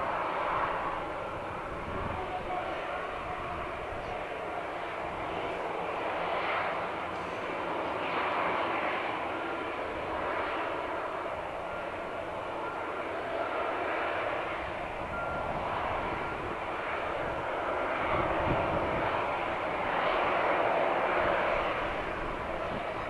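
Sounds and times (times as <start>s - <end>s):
jet engines running: 0.0s - 23.0s.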